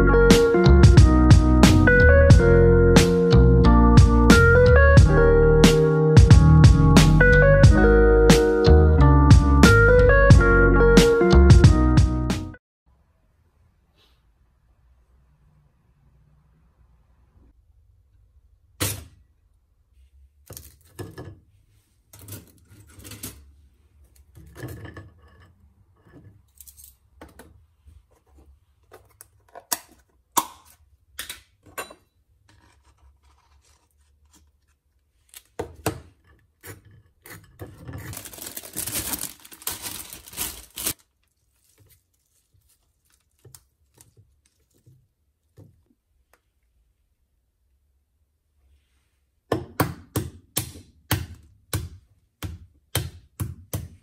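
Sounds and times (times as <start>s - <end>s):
kitchen clicks and knocks: 31.2s - 32.6s
knife scraping: 32.5s - 35.6s, 36.3s - 38.6s
plastic bag rustling: 38.0s - 45.0s.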